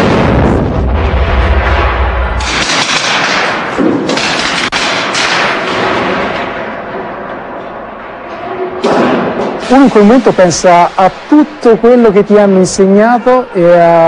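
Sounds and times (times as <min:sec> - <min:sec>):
explosive blasts rumbling: 0:00.0 - 0:06.3.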